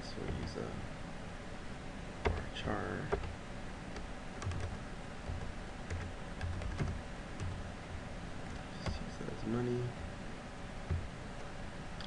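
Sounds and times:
typing on computer keyboard: 2.2 - 2.5, 3.1 - 3.3, 4.0 - 7.6.

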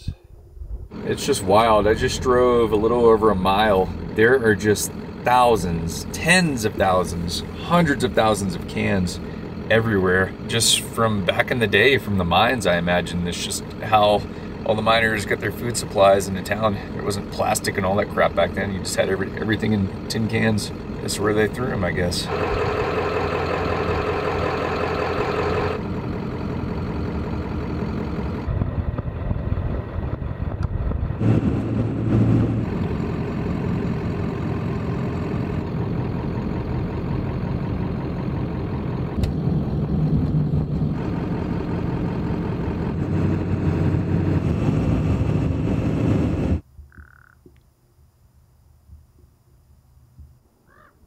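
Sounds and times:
diesel truck engine running: 0.8 - 46.6
crow cawing: 46.9 - 47.4, 50.6 - 51.0.

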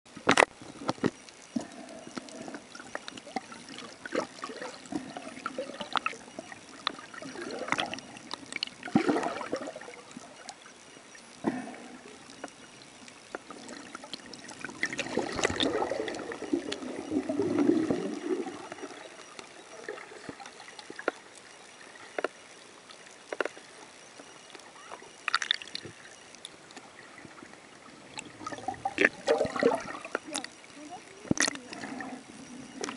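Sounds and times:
water sloshing and gurgling: 0.1 - 32.9
bubbling pops and splashes: 2.7 - 10.5, 13.4 - 19.2, 25.2 - 26.0, 28.1 - 30.5, 31.3 - 32.0.

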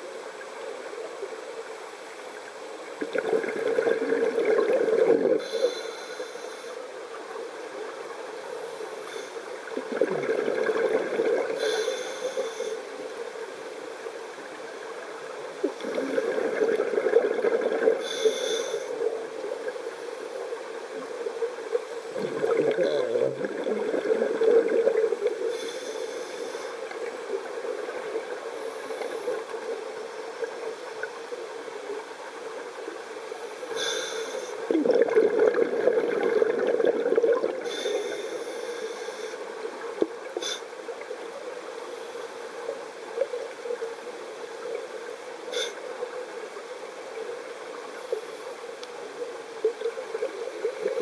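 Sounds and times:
steady underwater hiss: 0.0 - 51.0
exhaled air bubbling: 2.8 - 5.6, 9.6 - 11.9, 15.5 - 19.8, 20.5 - 26.1, 34.6 - 38.5
regulator inhalation hiss: 5.4 - 6.9, 8.6 - 9.7, 11.6 - 12.9, 18.0 - 19.1, 25.4 - 26.9, 33.4 - 34.6, 37.6 - 39.4, 45.5 - 45.8.

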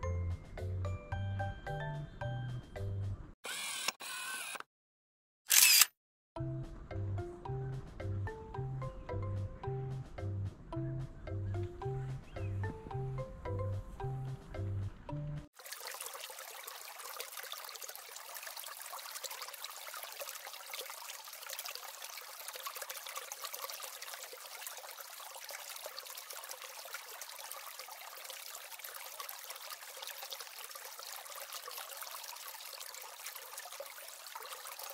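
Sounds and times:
water trickling: 15.5 - 34.9.

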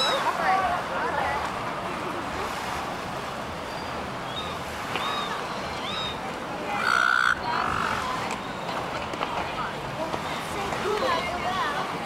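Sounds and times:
gulls calling: 3.6 - 8.8.

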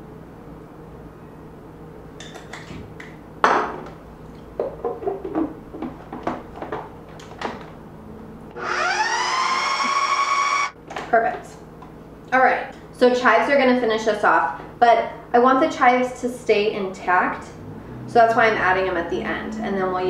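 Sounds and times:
food processor motor whining: 8.5 - 10.8.

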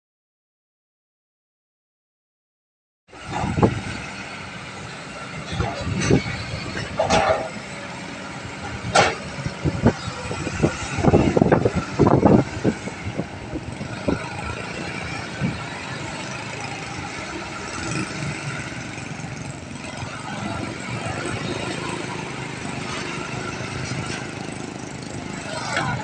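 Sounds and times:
excavator diesel engine running: 3.1 - 26.0
knocks and thumps: 8.9 - 9.9.

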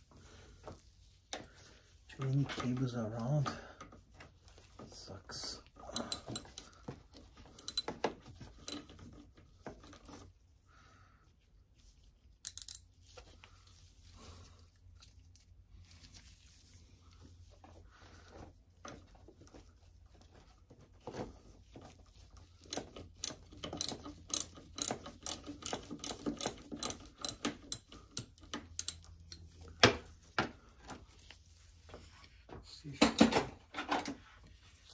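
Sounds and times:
hand ratchet clicking: 6.0 - 6.7, 7.6 - 8.0, 8.6 - 8.9, 12.4 - 12.8, 22.6 - 29.1.

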